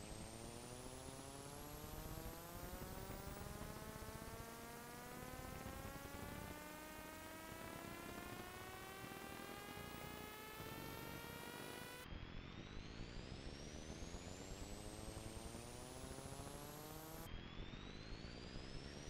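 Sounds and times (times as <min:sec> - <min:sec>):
faint rising hum: 0:00.0 - 0:19.0.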